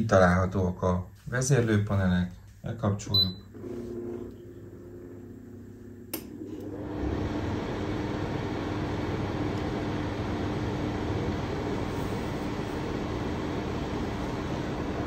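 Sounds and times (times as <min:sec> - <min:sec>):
heater switch click: 0:06.1 - 0:06.7
fan heater rushing air: 0:06.1 - 0:15.0.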